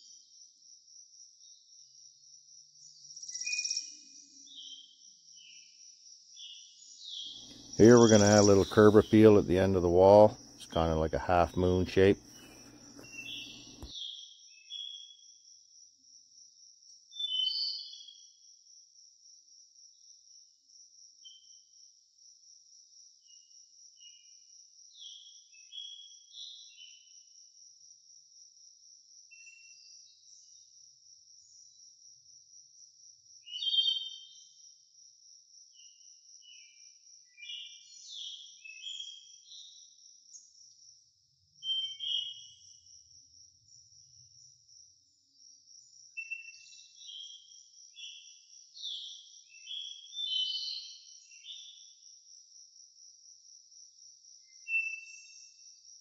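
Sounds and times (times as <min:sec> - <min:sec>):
high-pitched insect trill: 0:00.0 - 0:07.1
birds chirping and singing: 0:06.5 - 0:13.9.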